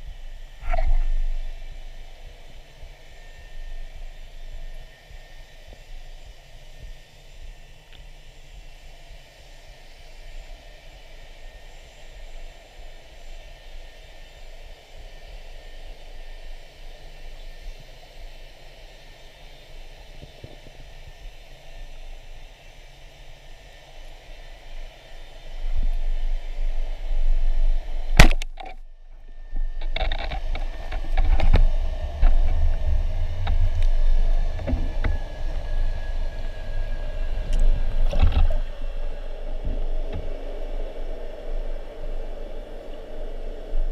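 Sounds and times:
muffled underwater hiss: 0:00.0 - 0:43.9
low underwater rumble: 0:00.6 - 0:01.8, 0:27.7 - 0:42.6
speargun firing crack: 0:28.2 - 0:28.6.

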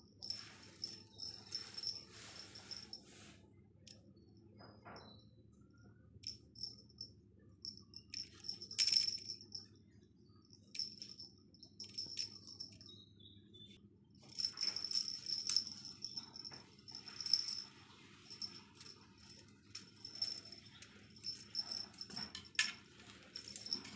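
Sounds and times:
cat toy jingling: 0:00.2 - 0:03.2, 0:06.2 - 0:09.7, 0:10.6 - 0:12.9, 0:14.3 - 0:23.9.

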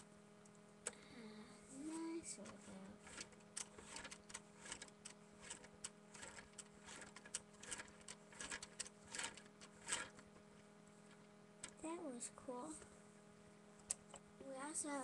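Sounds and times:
faint electrical hum: 0:00.0 - 0:15.0
plastic toy figures clicking: 0:02.4 - 0:10.2.

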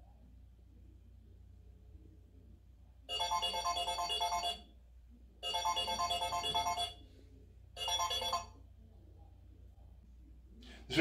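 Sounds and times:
smartphone ringtone: 0:03.1 - 0:04.7, 0:05.4 - 0:07.0, 0:07.8 - 0:08.6.

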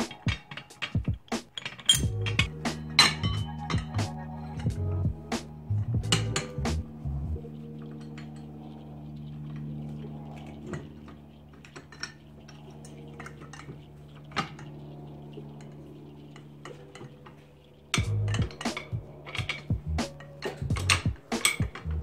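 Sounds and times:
metal jack clicks and clinks: 0:00.0 - 0:04.7, 0:16.6 - 0:22.0
low drone of held tones: 0:00.0 - 0:22.0.

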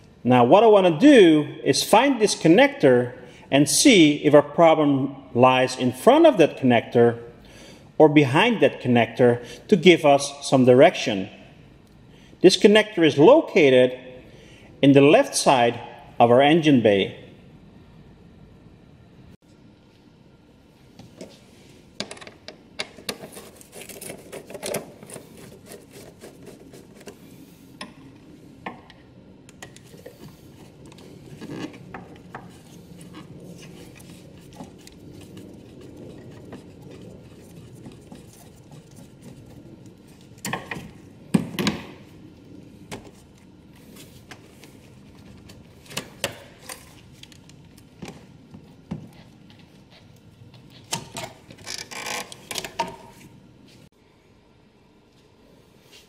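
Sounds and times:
clicks scrapes and rubbing: 0:22.8 - 0:27.2, 0:29.6 - 0:40.8.

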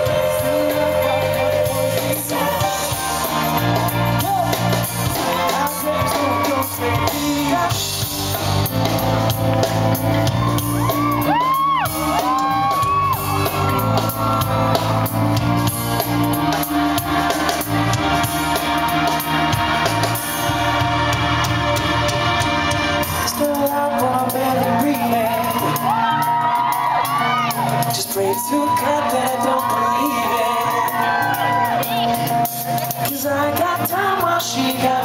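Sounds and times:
male lead vocal: 0:00.0 - 0:09.0, 0:16.3 - 0:35.0
fans shouting and whooping: 0:00.0 - 0:35.0
live pop-rock band playing: 0:00.0 - 0:35.0.

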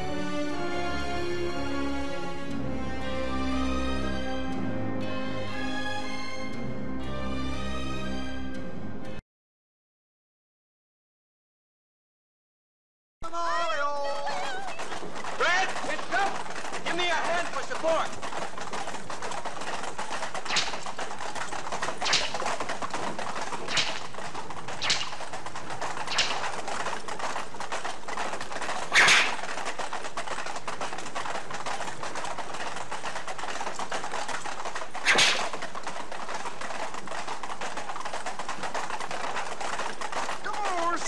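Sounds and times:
carriage rattling: 0:14.2 - 0:41.0
sharp cracks: 0:14.6 - 0:41.0.

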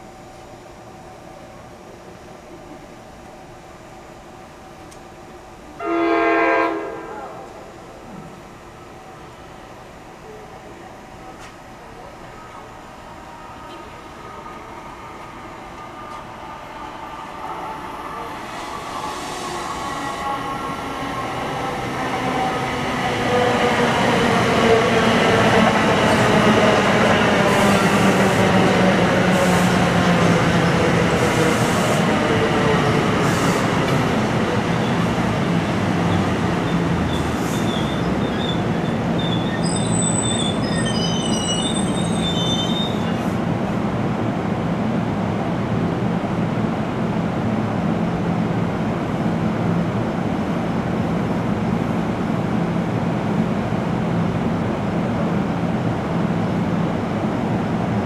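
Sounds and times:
train pulling into station: 0:00.0 - 0:58.0
train brake squeals: 0:36.1 - 0:43.4.

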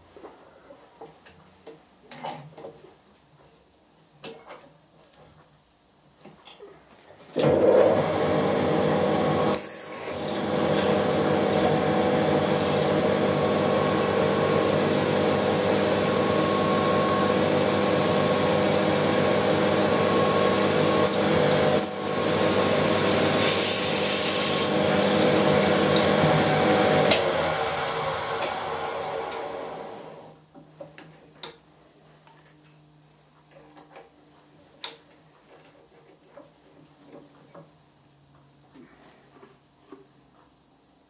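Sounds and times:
milling machine drilling hum and whine: 0:07.6 - 0:30.3.

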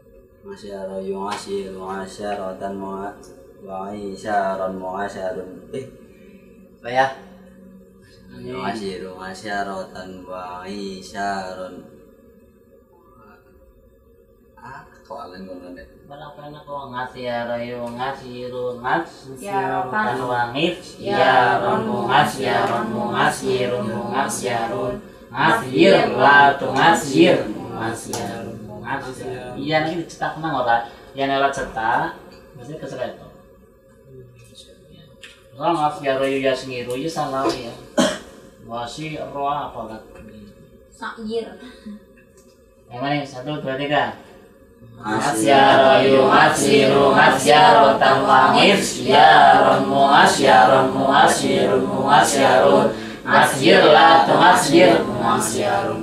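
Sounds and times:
male voices chanting: 0:19.4 - 0:29.6, 0:44.8 - 0:56.0.

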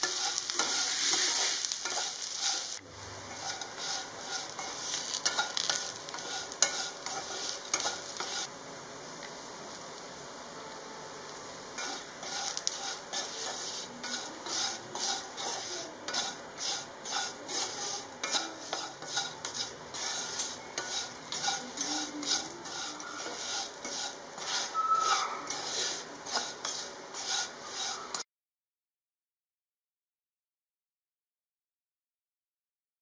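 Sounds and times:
wooden spatula scraping pan: 0:00.0 - 0:08.5, 0:11.8 - 0:28.2
eggplant sizzling in oil: 0:00.0 - 0:28.2.

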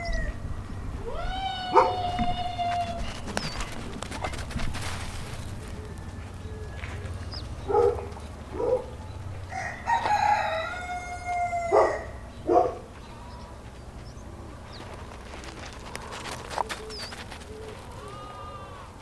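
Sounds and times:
rooster crowing: 0:01.0 - 0:03.1, 0:09.4 - 0:12.2, 0:17.5 - 0:19.0.

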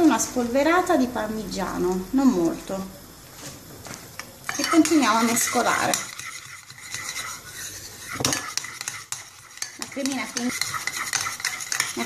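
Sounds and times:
fork beating eggs in a bowl: 0:04.2 - 0:12.0
fork tines clicking on bowl: 0:04.5 - 0:12.0.

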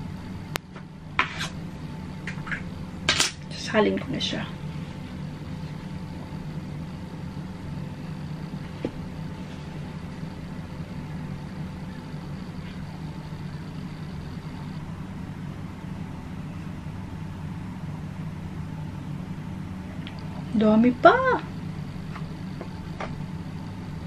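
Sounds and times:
low machine hum: 0:00.0 - 0:24.0
faint steady tones: 0:03.6 - 0:17.4.

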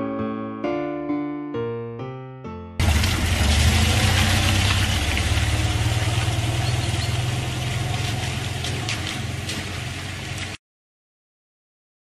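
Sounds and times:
engine idling: 0:02.8 - 0:10.6.

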